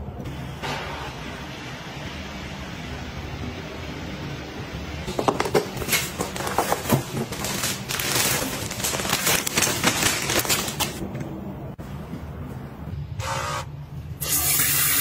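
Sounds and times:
plastic bag crinkling: 5.8s - 11.0s.

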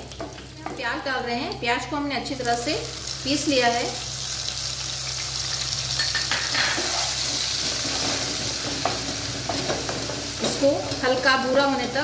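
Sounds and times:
onion paste sizzling in oil: 0.0s - 12.0s
wooden spatula scraping pan: 6.6s - 10.7s.

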